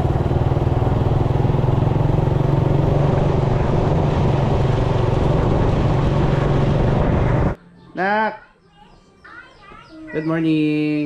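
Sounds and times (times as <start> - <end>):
motorcycle engine cruising: 0.0 - 7.6.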